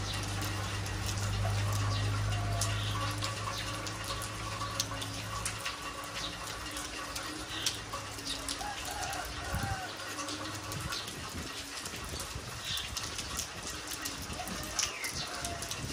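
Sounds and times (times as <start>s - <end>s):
low steady hum: 0.0s - 8.6s
close water drips: 0.0s - 15.9s
rain on pavement and roofing: 0.0s - 15.9s.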